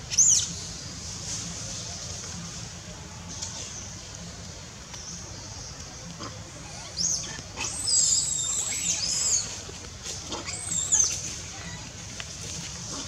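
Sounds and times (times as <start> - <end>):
macaque squealing: 6.2 - 9.5, 10.3 - 11.1.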